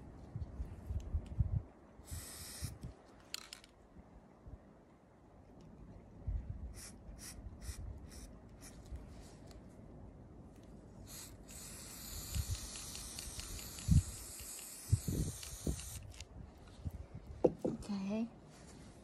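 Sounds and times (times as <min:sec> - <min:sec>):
spray paint can hissing: 0:02.0 - 0:02.8, 0:06.7 - 0:08.8, 0:11.0 - 0:16.2
spray paint can spurts: 0:02.0 - 0:03.7, 0:11.0 - 0:16.3.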